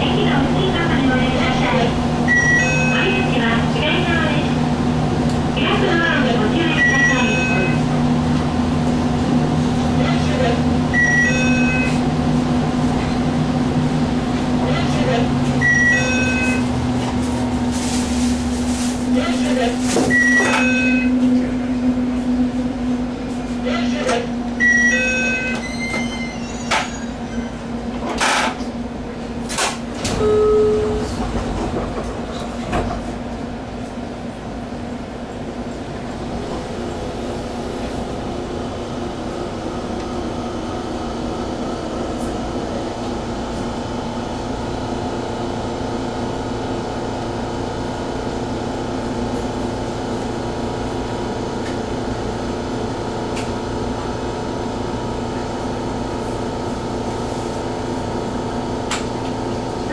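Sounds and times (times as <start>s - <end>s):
train equipment hum: 0.0s - 59.9s
short electronic beeps: 2.3s - 3.0s, 6.8s - 7.8s, 10.9s - 12.0s, 15.6s - 16.6s, 20.1s - 21.2s
low electronic tone: 6.8s - 7.8s, 10.9s - 12.0s, 15.6s - 16.7s, 20.1s - 21.5s, 30.1s - 31.2s.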